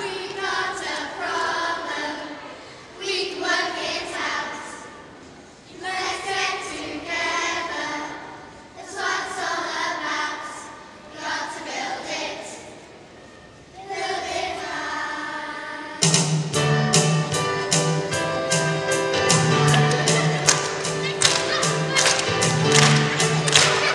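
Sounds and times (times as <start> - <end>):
children's choir singing: 0.0 - 16.1, 17.3 - 23.9
drum beats: 16.0 - 23.9.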